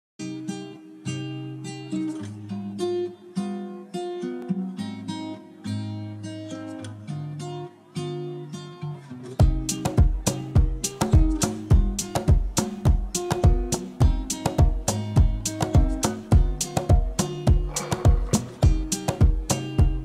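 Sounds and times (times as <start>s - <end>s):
acoustic guitar music: 0.2s - 20.0s.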